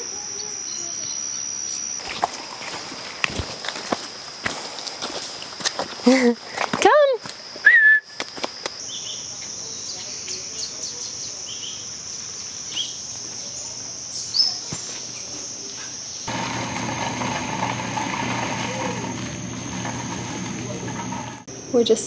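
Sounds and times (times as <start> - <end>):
high-pitched insect drone: 0.0 - 16.3.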